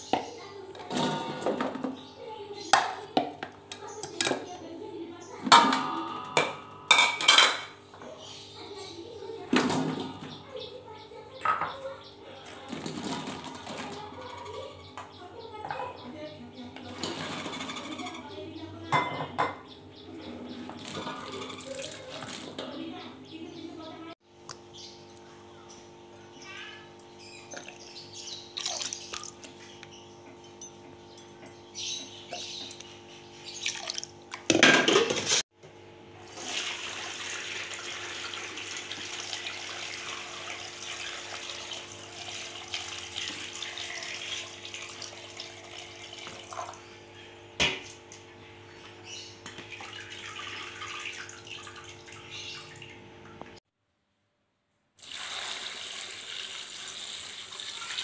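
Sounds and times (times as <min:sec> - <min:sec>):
liquid splashing into a bowl: 0:28.6 - 0:29.6, 0:33.6 - 0:35.2.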